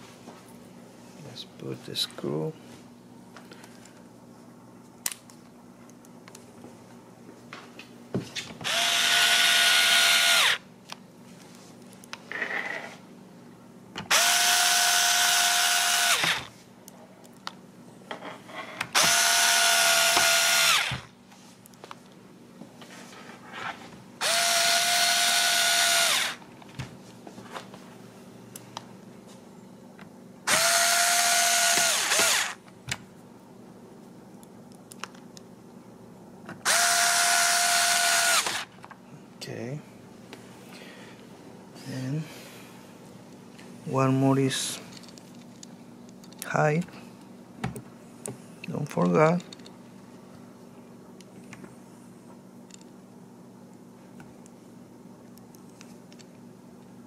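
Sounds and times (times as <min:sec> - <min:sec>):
electric screwdriver whine: 0:08.6 - 0:10.6, 0:14.1 - 0:16.5, 0:19.0 - 0:21.1, 0:24.2 - 0:26.4, 0:30.5 - 0:32.6, 0:36.6 - 0:38.7.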